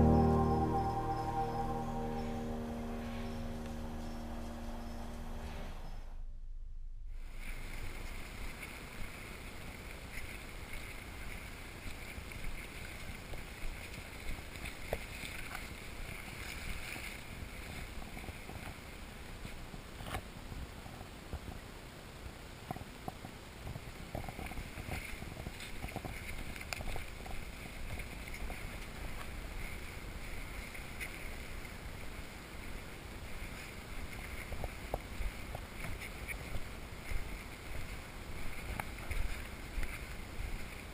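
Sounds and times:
clicks and rustles in grass: 7.3 - 21.7, 22.6 - 40.9.

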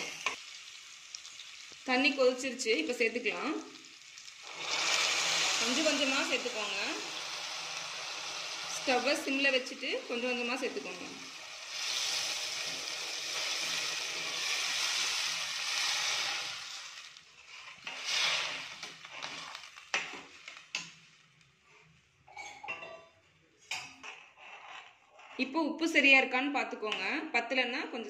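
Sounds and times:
hot water hissing in pot: 0.0 - 21.0.

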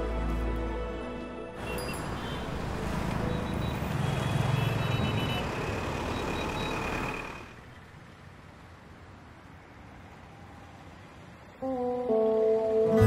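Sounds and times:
road traffic passing: 0.0 - 13.0.

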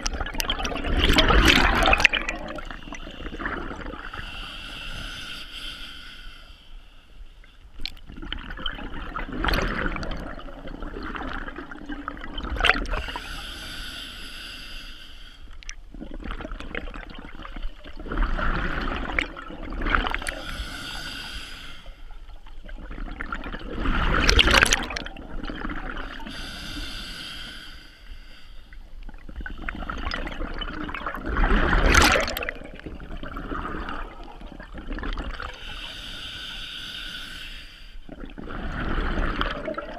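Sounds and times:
exhaled bubbles rushing: 0.0 - 4.2, 7.8 - 13.1, 15.9 - 20.4, 22.6 - 26.2, 29.3 - 35.6, 38.1 - 39.9.

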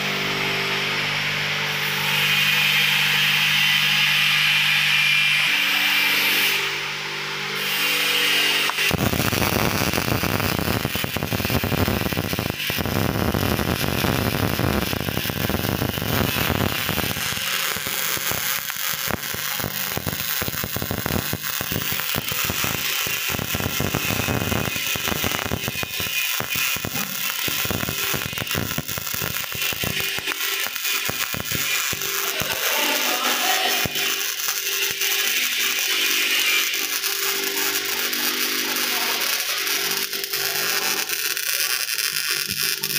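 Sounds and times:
welding arc crackling: 0.0 - 7.0, 7.6 - 42.9.

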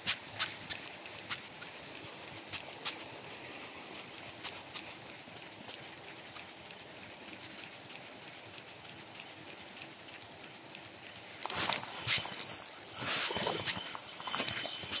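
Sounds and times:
handling rustle: 10.9 - 15.0
fishing reel ticking: 11.4 - 15.0.

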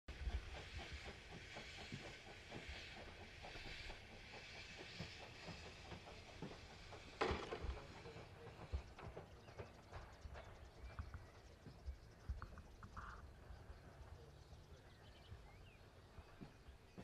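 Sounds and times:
steam engine thumps: 0.1 - 10.9
steam hissing: 0.1 - 17.0.

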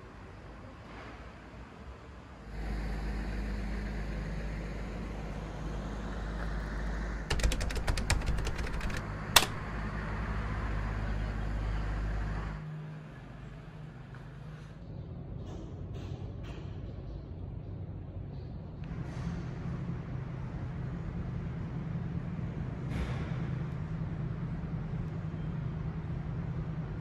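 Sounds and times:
fast rattle of sharp clicks: 7.3 - 9.6.

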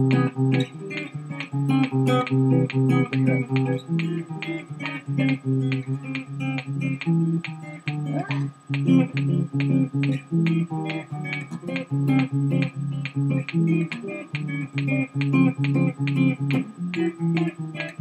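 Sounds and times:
electric guitar riff: 0.0 - 18.0.

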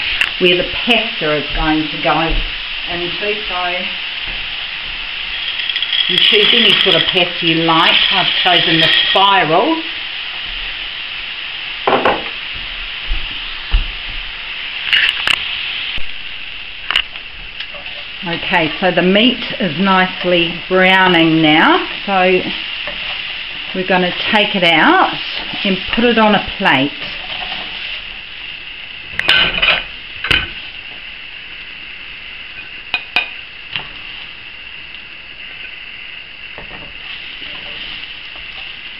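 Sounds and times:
beef sizzling in a frying pan: 0.0 - 38.9
spatula scraping frying pan: 4.7 - 9.7, 17.7 - 28.2, 37.0 - 38.7.

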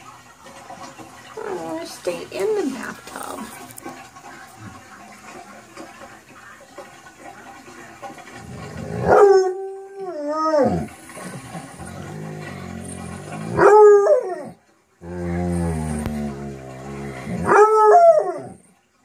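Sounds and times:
dog moaning: 8.4 - 18.7
dog howling: 8.6 - 18.7.

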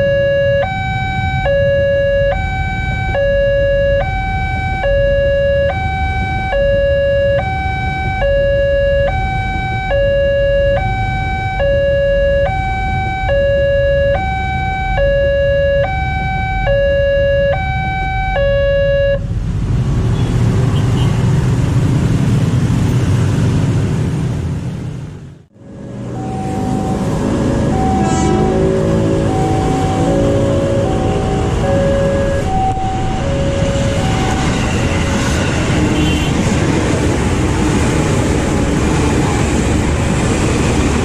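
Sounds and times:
level crossing warning alarm: 0.0 - 19.3, 26.1 - 36.1
motorbikes and traffic rumble: 0.0 - 41.0
passing train rumble: 19.2 - 41.0.

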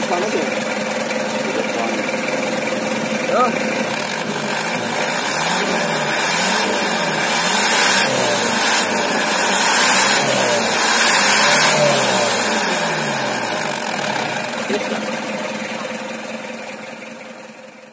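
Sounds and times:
vehicle engine revving: 0.0 - 17.0.

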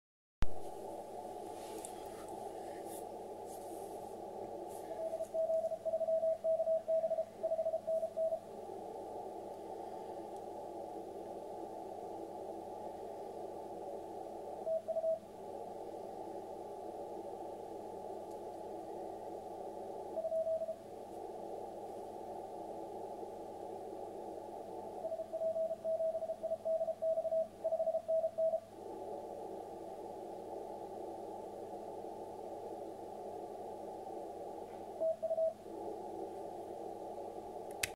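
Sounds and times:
muffled radio hiss: 0.4 - 37.9
morse code tone: 4.8 - 8.5, 25.1 - 28.6.

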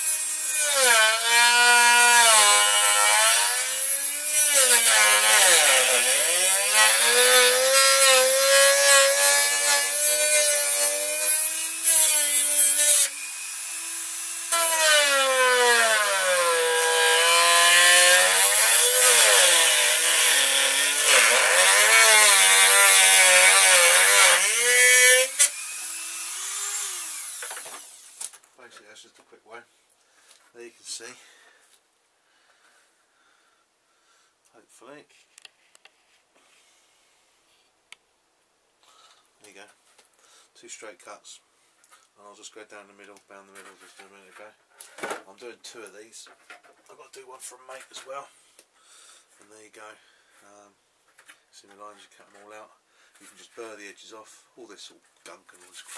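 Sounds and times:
rotary tool cutting plastic: 0.0 - 28.3.

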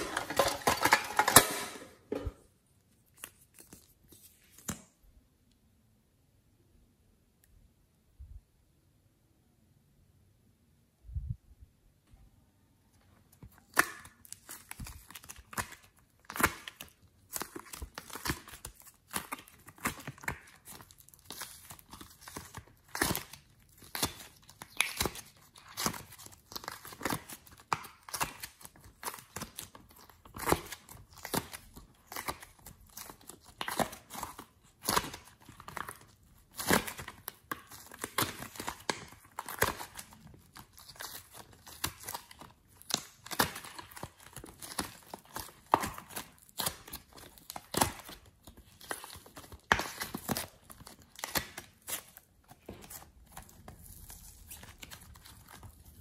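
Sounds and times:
sticky clay crackles and clicks: 13.3 - 56.0.

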